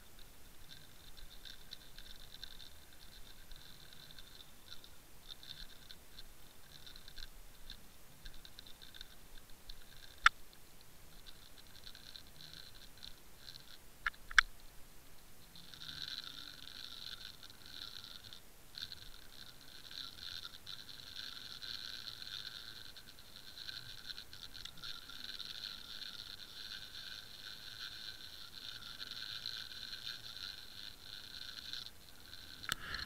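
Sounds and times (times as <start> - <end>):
rustling scraping along seabed: 0.0 - 33.0.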